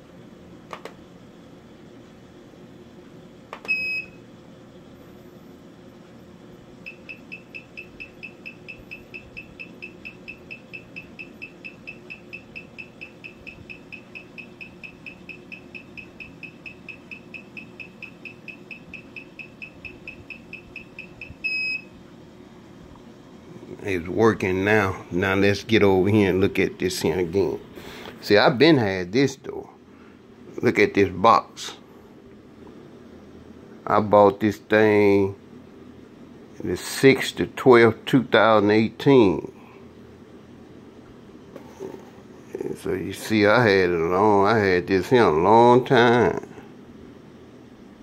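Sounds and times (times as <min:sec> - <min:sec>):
key programmer beeping: 0:06.9 - 0:21.9.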